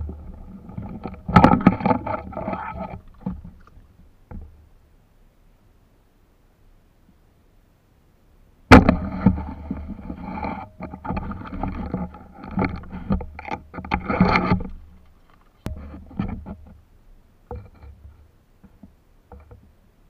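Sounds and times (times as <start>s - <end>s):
water sloshing and splashing: 0.0s - 4.1s.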